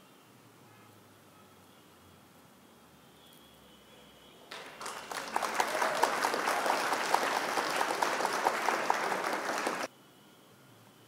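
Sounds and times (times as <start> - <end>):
crowd clapping: 4.5 - 9.9.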